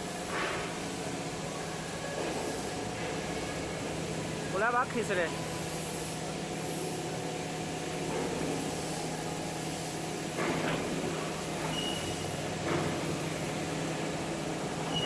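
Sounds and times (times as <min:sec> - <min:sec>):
high squeak: 0:11.7 - 0:12.2.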